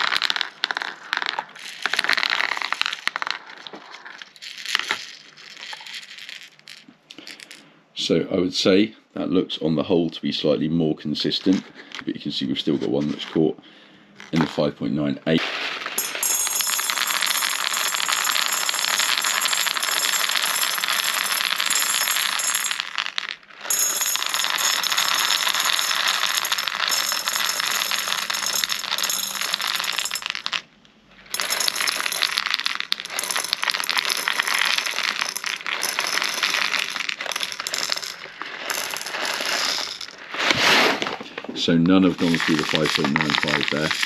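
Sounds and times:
plastic pellets rattling in gauge: 0.0s - 7.6s, 15.9s - 30.6s, 31.3s - 40.3s, 42.1s - 44.0s.

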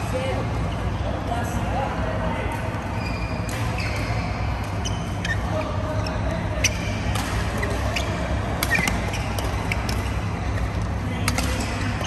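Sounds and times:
low hum of hall: 0.0s - 12.0s
shoe squeak on court: 3.0s - 10.1s
rackets hitting shuttlecock: 3.3s - 5.2s, 6.6s - 12.0s.

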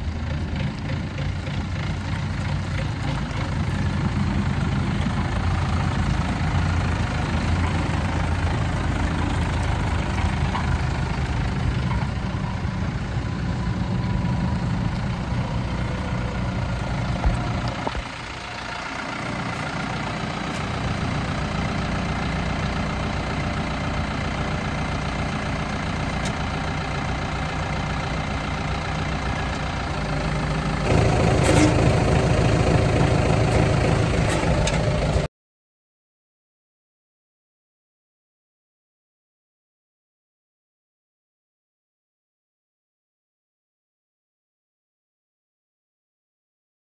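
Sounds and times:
tractor diesel engine running: 0.0s - 35.3s.

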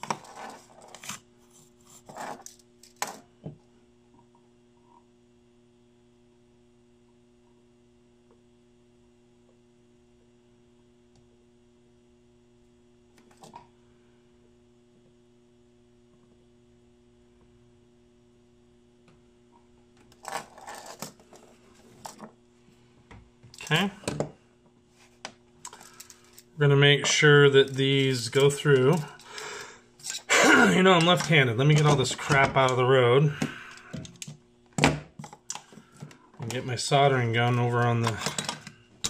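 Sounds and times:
electrical mains hum: 0.0s - 39.0s.

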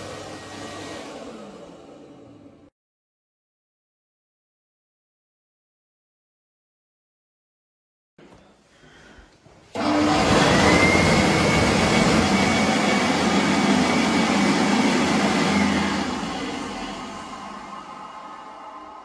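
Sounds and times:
hand dryer blowing: 0.0s - 2.7s, 9.7s - 19.0s.

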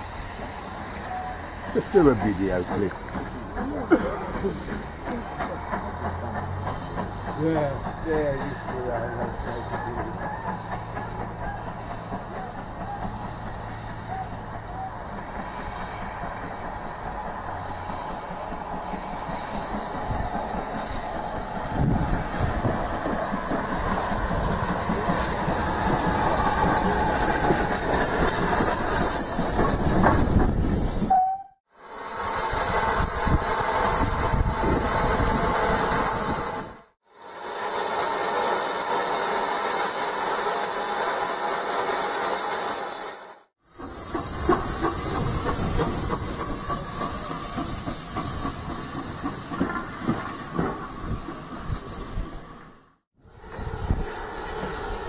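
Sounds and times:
train rumble: 0.0s - 37.0s, 43.5s - 55.0s
steam hissing: 0.0s - 55.0s
train wheels clicking over rail joints: 1.8s - 31.2s, 43.7s - 52.4s.

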